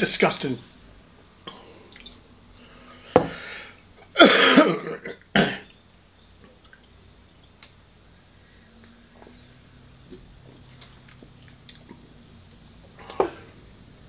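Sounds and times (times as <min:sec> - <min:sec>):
man coughing and clearing throat: 0:04.2 - 0:05.7.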